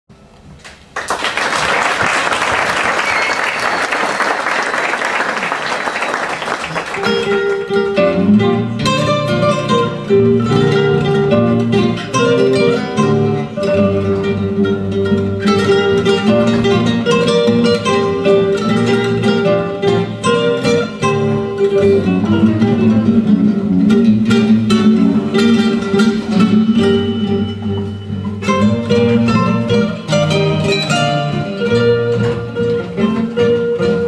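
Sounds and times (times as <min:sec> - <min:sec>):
audience applause: 0:00.9 - 0:07.2
classical guitars playing: 0:05.3 - 0:34.0.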